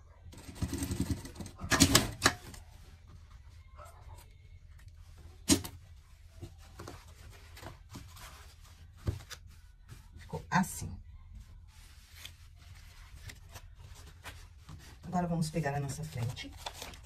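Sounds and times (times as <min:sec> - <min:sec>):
sewing machine stitching: 0:00.3 - 0:02.2
fabric and paper handled: 0:01.0 - 0:17.0.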